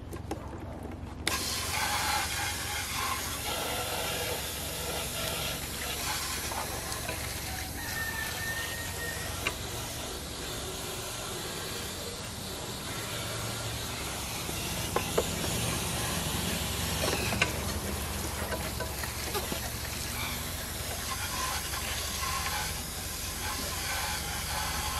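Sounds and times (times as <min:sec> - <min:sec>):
water spraying on plastic: 0:01.3 - 0:24.9.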